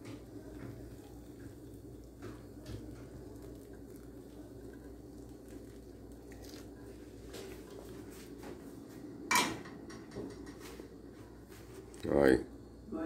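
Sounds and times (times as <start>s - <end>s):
water crackling and bubbling in soil: 0.0s - 8.1s.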